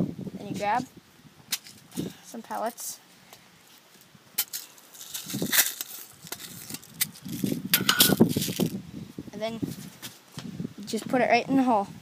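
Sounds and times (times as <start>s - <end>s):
pellets rattling and rustling: 4.4s - 8.8s.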